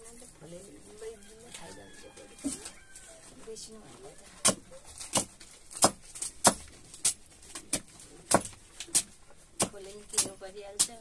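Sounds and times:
knife chopping on wooden block: 4.4s - 11.0s.

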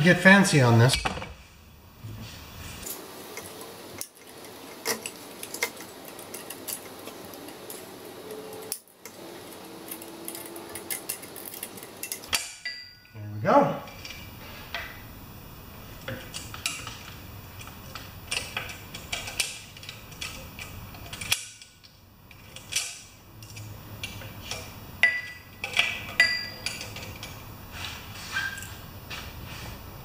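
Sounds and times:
metal parts and tools clinking: 3.3s - 13.2s, 16.1s - 27.5s.

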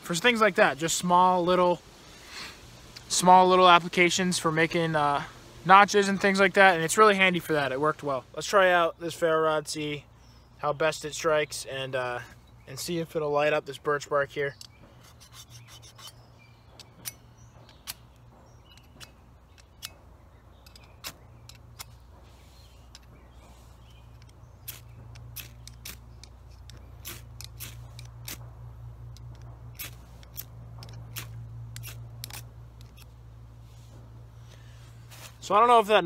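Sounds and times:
ferro rod scraping metal: 14.9s - 18.0s.

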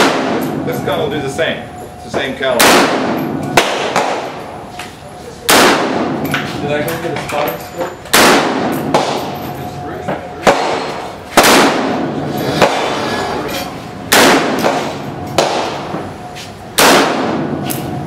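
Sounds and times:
rifle shots echoing: 0.0s - 0.6s, 2.6s - 4.5s, 5.5s - 6.3s, 8.1s - 9.4s, 10.4s - 12.9s, 14.1s - 15.9s, 16.8s - 17.7s.

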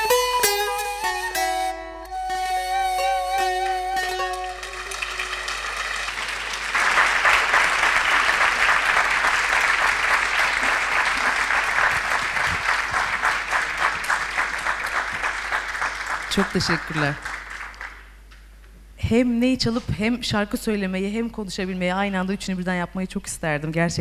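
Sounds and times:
plucked lute: 0.0s - 5.6s
ney flute: 0.0s - 5.8s
audience applause: 4.2s - 18.1s.

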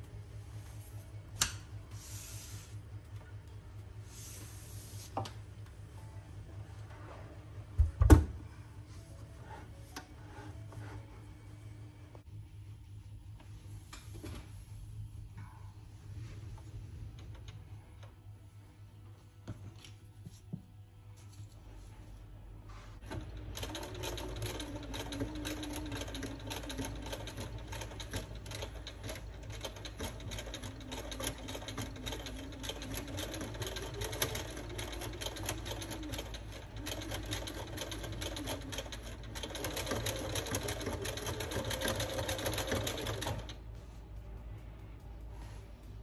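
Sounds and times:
sewing machine stitching: 23.0s - 43.6s.

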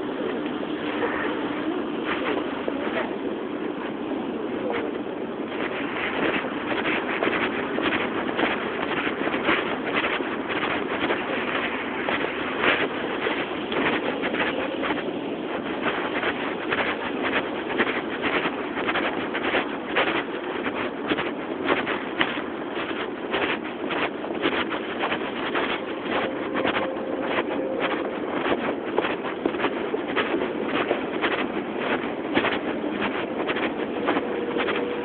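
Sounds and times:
footsteps on sidewalk: 0.0s - 35.0s
passing traffic: 24.8s - 35.0s.

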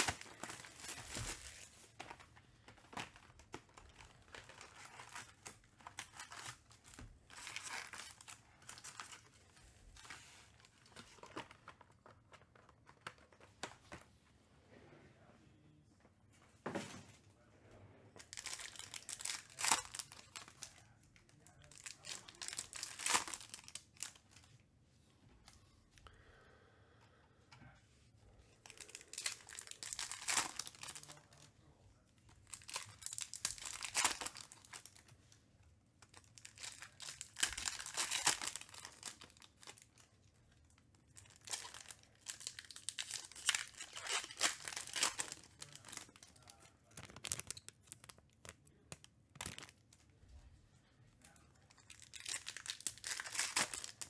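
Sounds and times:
foil wrappers torn and crinkled: 0.0s - 10.2s, 18.3s - 20.8s, 21.4s - 24.4s, 28.7s - 31.4s, 32.4s - 35.1s, 36.0s - 40.1s, 41.1s - 50.1s, 51.7s - 54.0s.

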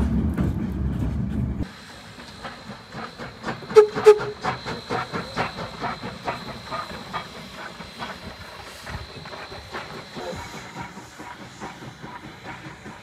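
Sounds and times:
steam locomotive chuffing: 0.0s - 13.0s
hissing steam: 1.6s - 13.0s.

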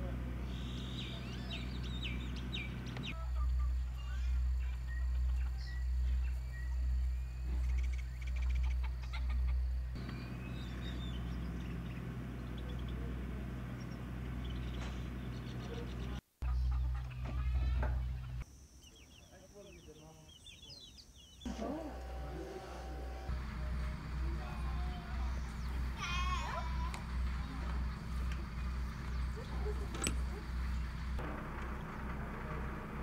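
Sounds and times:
chickens and birds calling: 0.1s - 31.2s
low rumble: 23.3s - 33.0s.

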